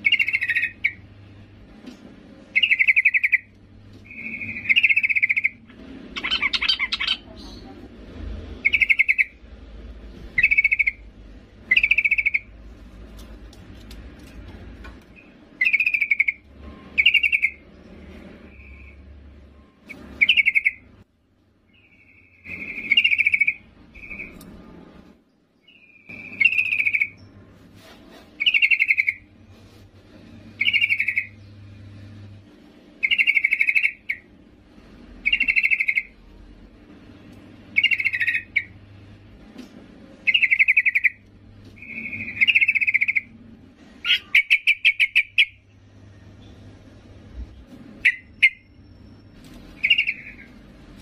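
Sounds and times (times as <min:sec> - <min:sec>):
bird chattering calls: 0:00.0 - 0:01.0, 0:02.5 - 0:07.9, 0:08.6 - 0:09.4, 0:10.3 - 0:12.6, 0:15.2 - 0:17.6, 0:19.9 - 0:20.9, 0:21.7 - 0:24.4, 0:28.4 - 0:29.3, 0:30.6 - 0:31.4, 0:33.0 - 0:34.3, 0:35.2 - 0:36.2, 0:37.7 - 0:38.8, 0:40.2 - 0:41.2, 0:41.8 - 0:43.4, 0:44.0 - 0:45.6, 0:48.0 - 0:48.8, 0:49.8 - 0:50.6.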